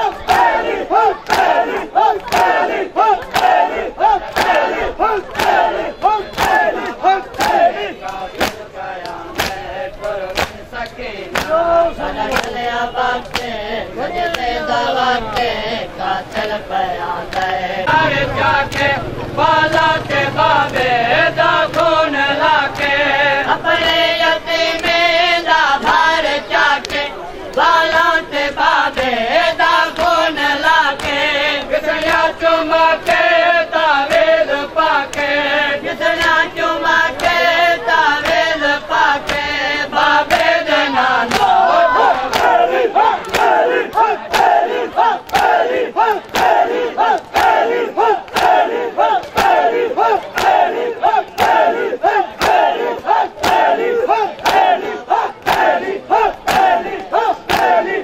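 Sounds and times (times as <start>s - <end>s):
hands slapping chests: 0.0s - 11.6s, 13.2s - 13.5s, 21.7s - 22.0s, 23.8s - 25.0s, 29.8s - 32.3s, 39.2s - 39.6s, 41.2s - 54.8s, 55.4s - 58.0s
men chanting in unison: 0.0s - 58.0s.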